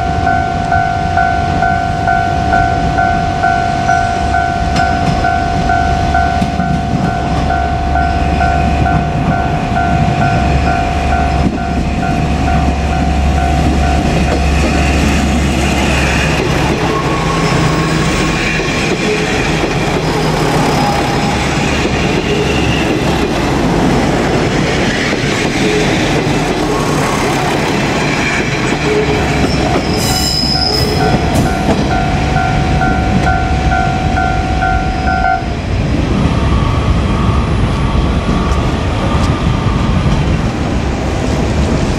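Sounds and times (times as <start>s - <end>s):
level-crossing alarm ringing: 0.0s - 23.3s, 25.2s - 35.6s
diesel railcar rumbling past: 0.0s - 41.9s
high sharp screech: 28.0s - 31.4s.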